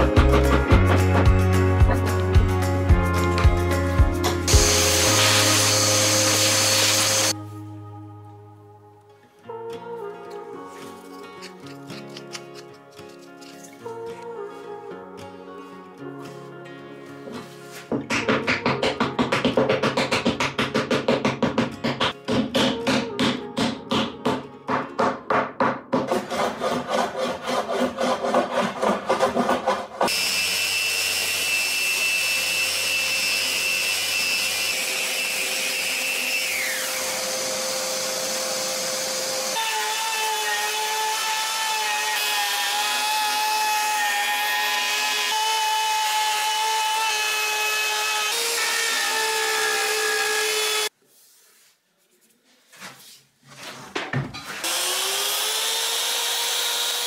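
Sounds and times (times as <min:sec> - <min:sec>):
orbital sander running: 0:04.5 - 0:07.3, 0:30.1 - 0:39.6, 0:54.6 - 0:57.0
router motor spinning up: 0:04.5 - 0:07.3, 0:30.1 - 0:39.6, 0:54.6 - 0:57.0.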